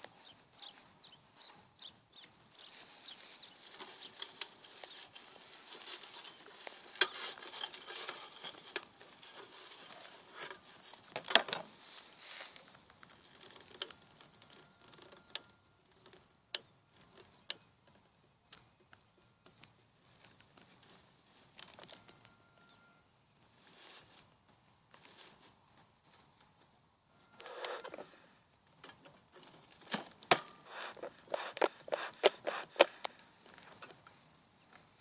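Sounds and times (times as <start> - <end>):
dry fuel rustling and crinkling: 0.0 - 22.4, 23.4 - 35.0
sharp clicks: 30.2 - 33.2.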